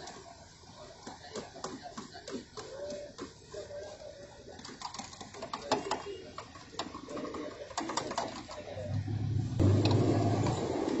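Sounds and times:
loud low rumble: 8.9 - 10.6.

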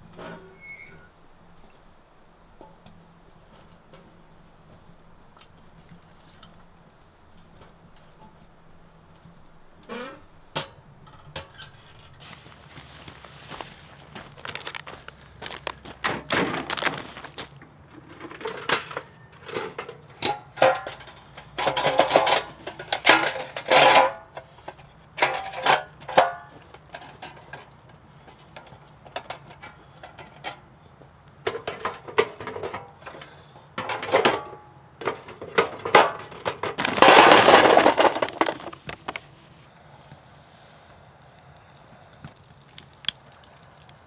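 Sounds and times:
charcoal poured from a bag: 12.2 - 17.6, 36.8 - 39.3
metal grill clinks and rattles: 18.0 - 24.3.

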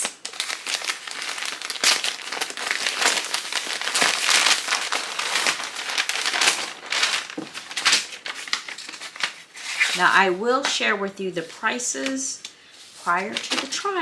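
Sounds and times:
packaging crinkling and rustling: 0.0 - 10.2, 12.8 - 14.0.

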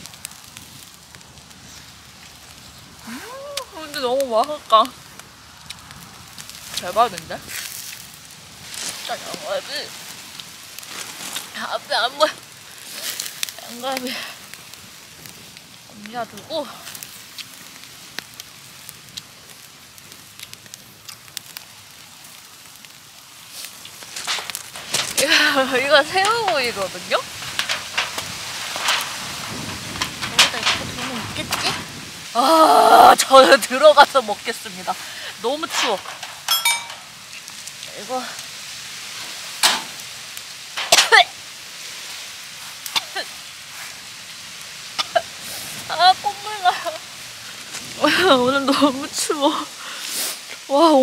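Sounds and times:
fire hissing: 0.0 - 51.0
wood fire crackling: 0.0 - 51.0
woman making shivering sounds: 3.1 - 3.6
sharp pops: 39.6 - 41.3.

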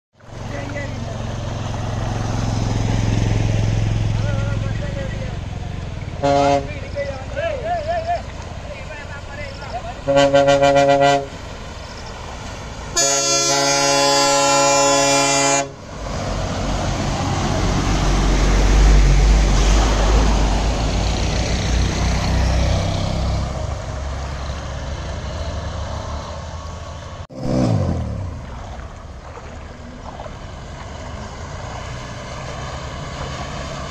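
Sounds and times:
bus engine rumbling: 0.1 - 33.9
water splashing from wheels: 0.2 - 33.9
bus horn blast: 6.2 - 6.9, 10.0 - 11.4, 12.9 - 15.8.

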